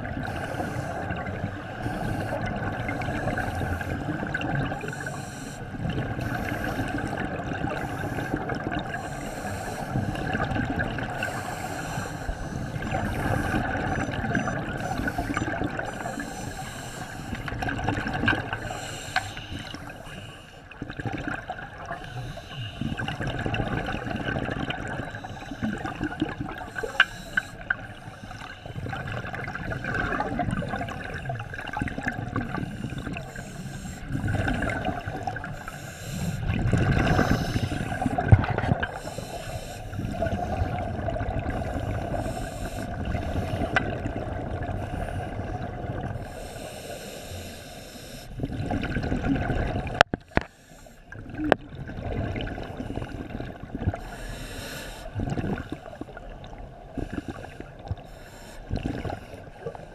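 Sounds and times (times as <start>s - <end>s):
exhaled bubbles gurgling: 0.0s - 47.2s, 48.2s - 59.9s
regulator inhalation hiss: 4.8s - 5.7s, 9.0s - 10.2s, 11.3s - 13.6s, 14.8s - 17.4s, 18.6s - 20.6s, 32.6s - 34.2s, 35.5s - 36.5s, 39.0s - 40.1s, 41.7s - 42.9s, 46.2s - 48.4s, 50.4s - 51.1s, 54.0s - 55.2s.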